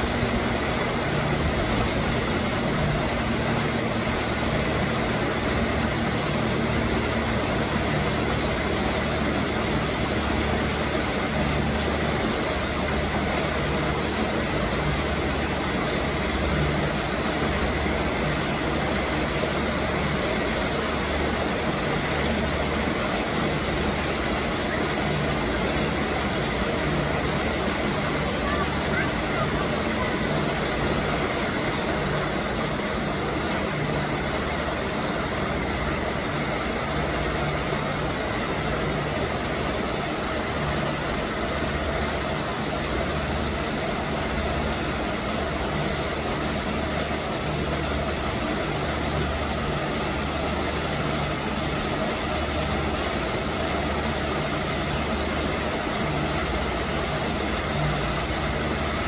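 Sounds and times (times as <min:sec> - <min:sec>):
rushing background noise: 0:00.0 - 0:59.0.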